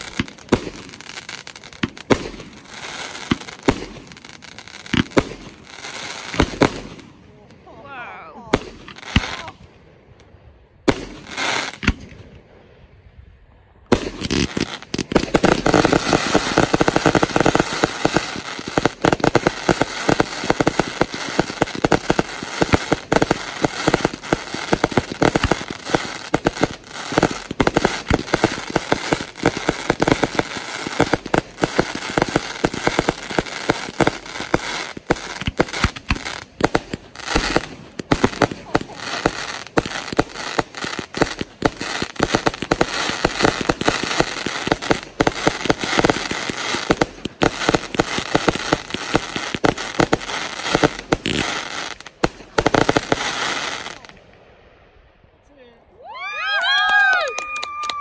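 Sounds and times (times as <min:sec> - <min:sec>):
fireworks bangs and crackling: 0:00.0 - 0:09.8, 0:10.8 - 0:12.4, 0:13.8 - 0:54.6.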